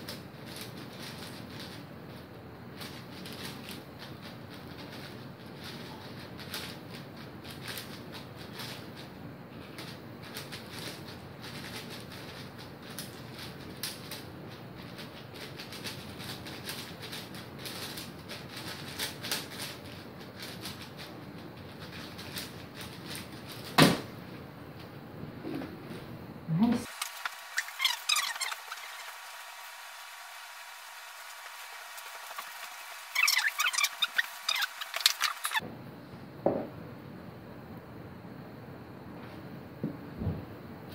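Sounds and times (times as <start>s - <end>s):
puzzle cube turning clatter: 0.0s - 1.8s, 2.8s - 9.1s, 9.8s - 23.8s, 26.9s - 35.6s.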